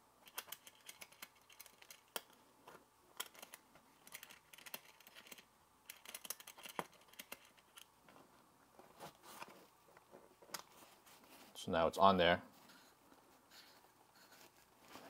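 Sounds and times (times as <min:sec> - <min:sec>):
handling rustles: 0:06.2 - 0:11.6, 0:12.4 - 0:15.0.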